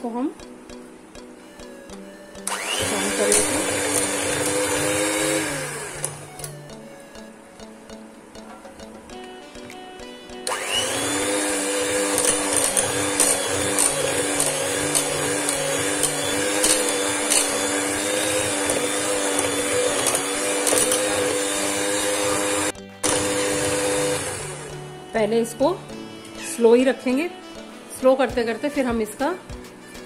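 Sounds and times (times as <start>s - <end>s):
electric hand mixer running: 2.4s - 6.6s, 10.4s - 25.3s
beaters clicking against bowl: 12.2s - 22.4s.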